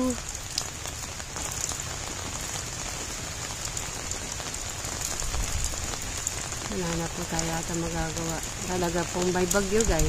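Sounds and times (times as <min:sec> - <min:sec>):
raindrops ticking: 0:00.0 - 0:10.0
steady rain falling: 0:00.0 - 0:10.0.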